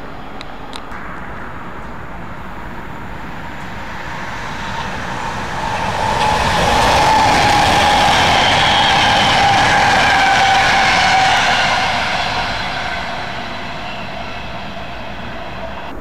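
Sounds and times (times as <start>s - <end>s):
train rumble: 0.0s - 16.0s
electric motor high whine: 4.8s - 15.9s.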